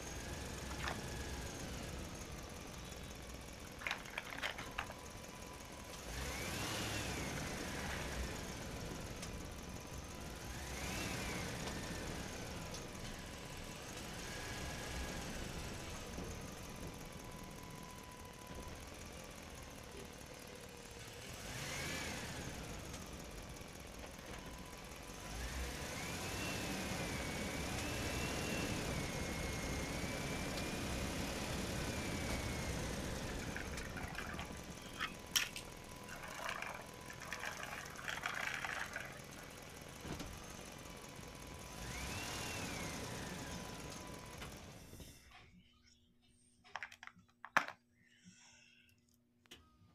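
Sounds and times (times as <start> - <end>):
toy truck wheels rumbling: 0.0 - 10.6, 31.4 - 41.1
plastic toy figures clattering: 3.7 - 5.0, 33.6 - 39.5, 46.7 - 47.8.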